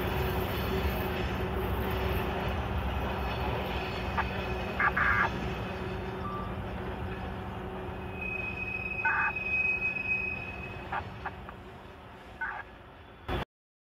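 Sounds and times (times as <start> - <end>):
train rumbling past: 0.0 - 13.4
high wheel squeal: 3.4 - 6.6, 7.7 - 11.5.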